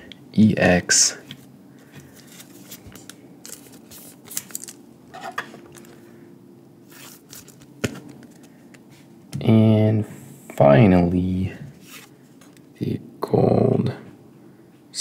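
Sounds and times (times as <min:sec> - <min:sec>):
soft plastic rustling: 0:01.4 - 0:06.1.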